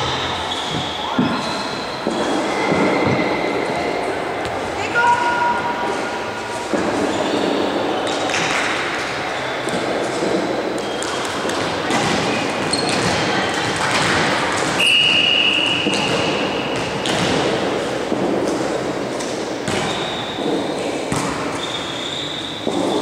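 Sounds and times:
volleyball being struck: 9.7 - 21.7.

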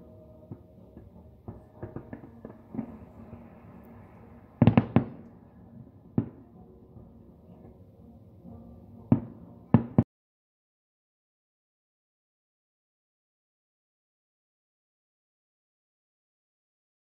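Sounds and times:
fireworks pops and bangs: 0.5 - 5.4.

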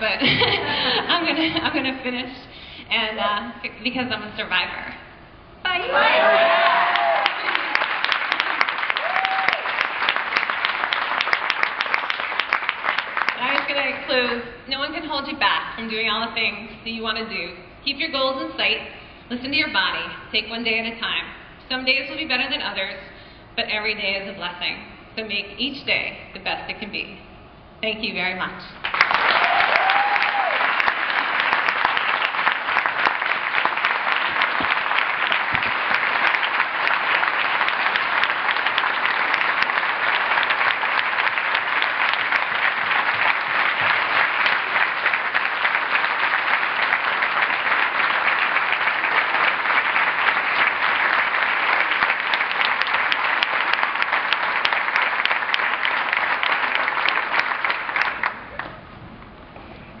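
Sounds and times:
large audience applauding: 5.7 - 13.9, 28.8 - 58.8.

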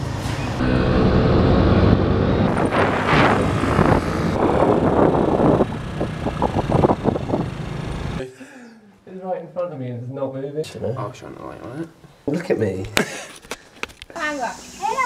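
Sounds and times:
wind buffeting microphone: 1.5 - 7.7
motor scooter engine running: 2.5 - 8.2.

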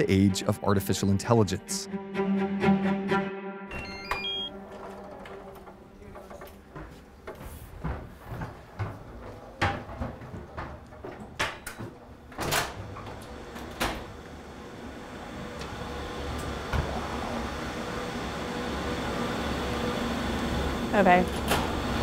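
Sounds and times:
machine-room hum: 3.7 - 22.0
footsteps on hard floor: 6.2 - 10.7.

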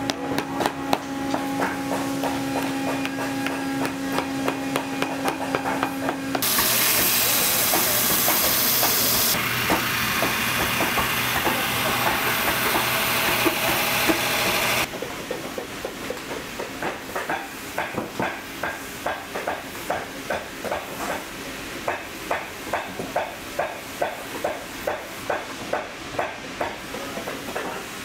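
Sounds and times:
machine hum with tapping: 0.0 - 21.2
loud steady hiss: 6.4 - 14.9.

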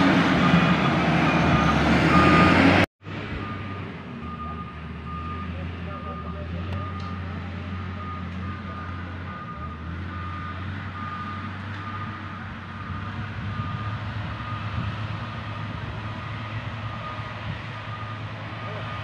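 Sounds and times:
diesel engine running: 0.0 - 19.0
reversing alarm beeping: 0.4 - 12.2, 16.1 - 19.0.

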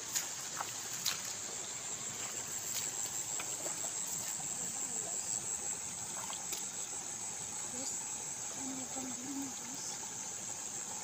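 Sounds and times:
insects chirring: 0.0 - 11.0.

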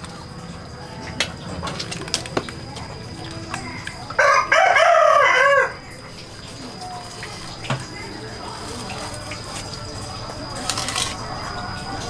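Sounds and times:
rooster crowing: 4.0 - 6.1.

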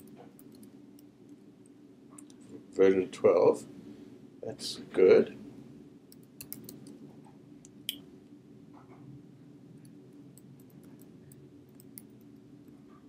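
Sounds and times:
low room hum: 0.0 - 13.0
computer keyboard keystrokes: 6.1 - 7.0.

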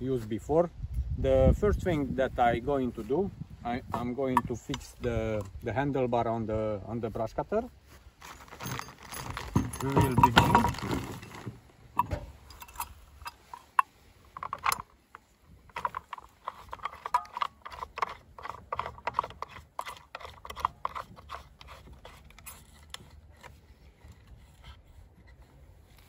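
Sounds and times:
small clicks and rattles: 8.2 - 24.4.

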